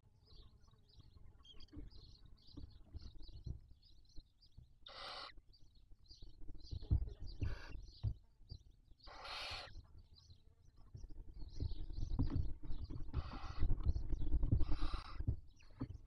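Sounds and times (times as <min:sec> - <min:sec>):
owl chicks rasping hisses: 0:09.1 - 0:09.7, 0:14.6 - 0:15.2.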